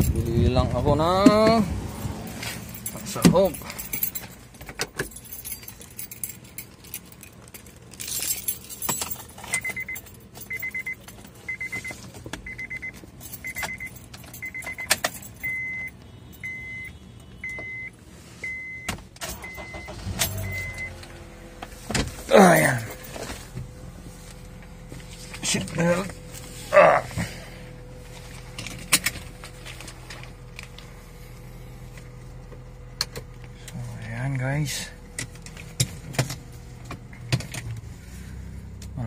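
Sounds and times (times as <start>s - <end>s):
keys jangling: 1.8s - 11.4s, 12.9s - 15.8s
car warning chime beeping: 9.5s - 21.5s.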